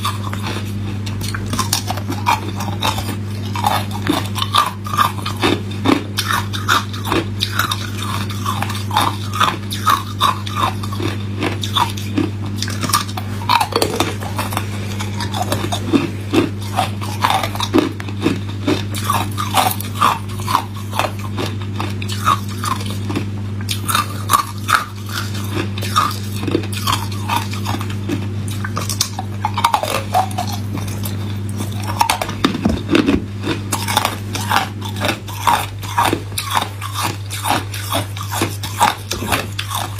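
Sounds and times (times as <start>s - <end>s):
ice crunching between teeth: 0.0s - 39.9s
low hum: 12.6s - 18.2s.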